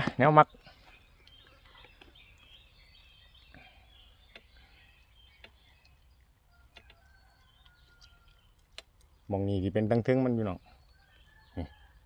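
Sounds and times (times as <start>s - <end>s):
faint bird chirps: 0.0s - 12.0s
small sharp clicks: 8.0s - 9.1s.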